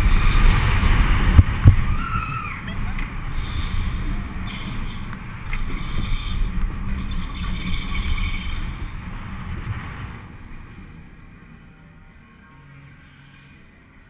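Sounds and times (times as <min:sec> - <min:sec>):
wind buffeting microphone: 0:00.0 - 0:10.6
roller coaster wheels rumbling: 0:00.0 - 0:11.8.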